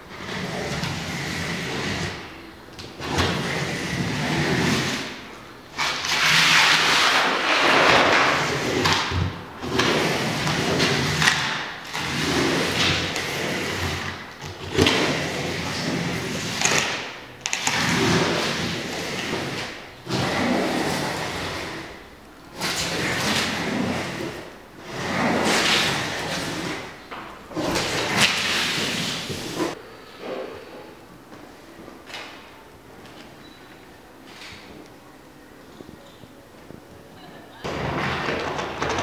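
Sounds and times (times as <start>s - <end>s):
iron scraping across paper: 0.1s - 2.4s, 3.0s - 29.8s.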